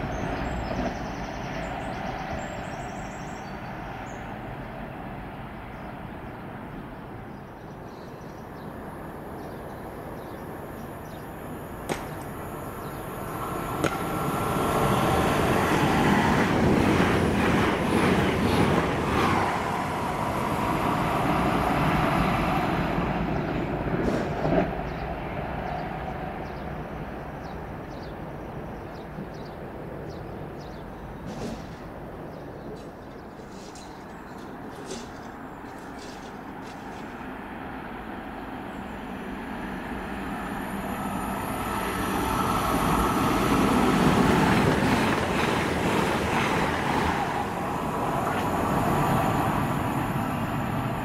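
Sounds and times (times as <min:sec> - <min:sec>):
train rail and wheel noise: 0:00.0 - 0:51.0
sharp clicks of train: 0:11.8 - 0:19.7, 0:23.8 - 0:25.0, 0:31.2 - 0:37.5, 0:41.1 - 0:51.0.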